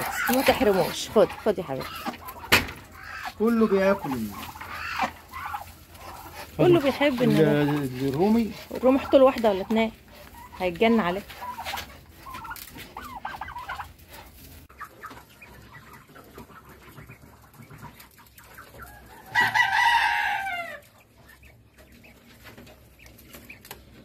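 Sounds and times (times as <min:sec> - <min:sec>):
chicken clucking: 0:00.0 - 0:24.0
rooster crowing: 0:19.0 - 0:20.8.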